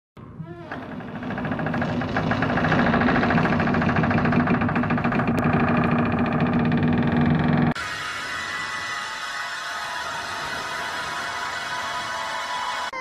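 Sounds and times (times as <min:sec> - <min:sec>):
rapid buzzing rattle: 0:00.8 - 0:07.8.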